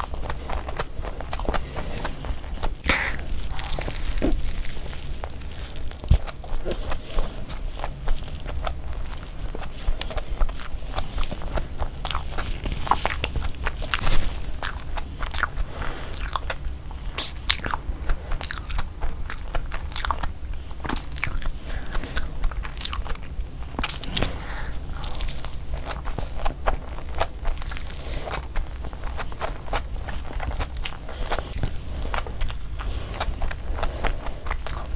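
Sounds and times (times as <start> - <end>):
low steady hum: 0.0 - 34.9
person chewing food: 0.0 - 34.9
wet mouth clicks: 16.2 - 17.6, 22.5 - 25.2.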